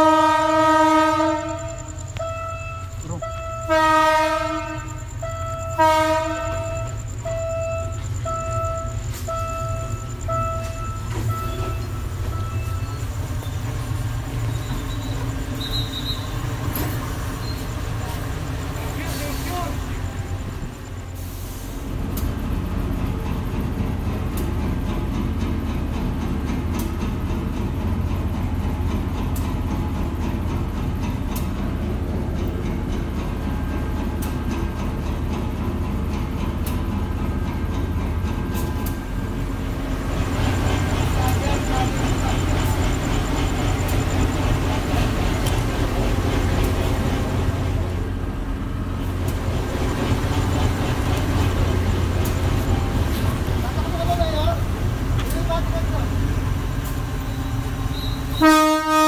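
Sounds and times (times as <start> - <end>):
locomotive horn blasts: 0.0 - 9.9, 57.9 - 59.0
locomotive engine rumble: 0.0 - 59.0
level-crossing warning beeps: 1.3 - 21.8, 37.4 - 47.8, 55.3 - 58.7
sharp ticks: 40.3 - 45.8.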